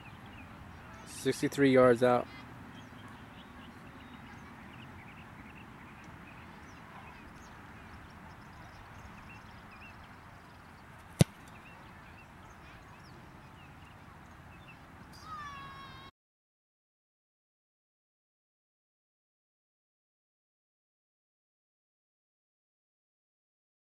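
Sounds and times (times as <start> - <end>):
faint outdoor background: 0.0 - 16.1
foot kicking a football: 11.1 - 11.6.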